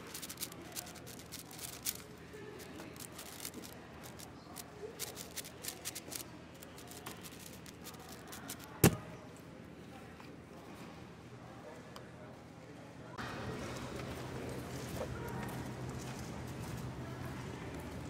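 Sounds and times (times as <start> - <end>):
plastic puzzle cube clicking: 0.0 - 2.0, 2.9 - 4.2, 5.0 - 9.0.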